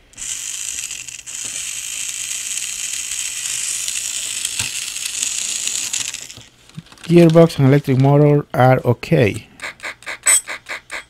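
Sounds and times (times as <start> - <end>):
toy electric motor whirring: 0.0 - 7.0, 9.6 - 11.0.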